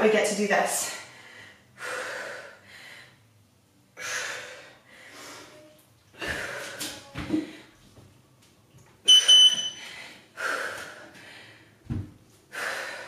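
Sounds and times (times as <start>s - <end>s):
woman breathing hard: 0.8s - 3.4s, 4.0s - 7.8s, 9.7s - 13.0s.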